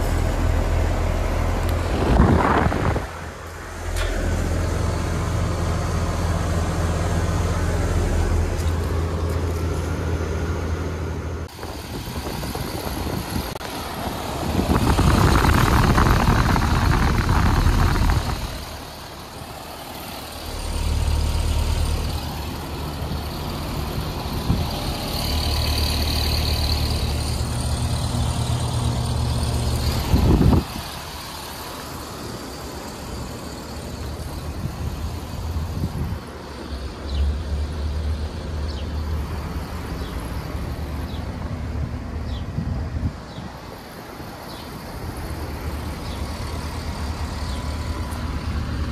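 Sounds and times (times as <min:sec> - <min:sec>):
rushing noise: 0:00.0 - 0:36.3.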